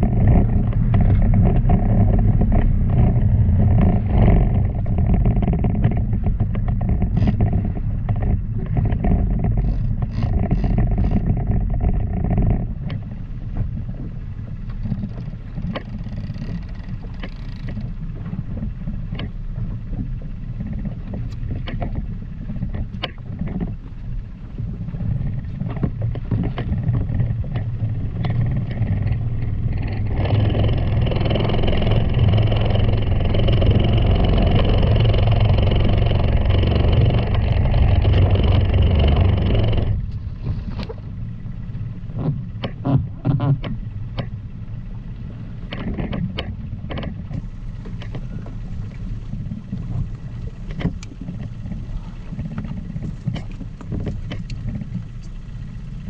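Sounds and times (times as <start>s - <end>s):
outboard motor running: 0.0s - 56.0s
wind and water: 0.0s - 56.0s
knocks and clicks from gear: 14.6s - 19.4s, 20.0s - 23.8s, 42.1s - 44.4s, 45.6s - 55.5s.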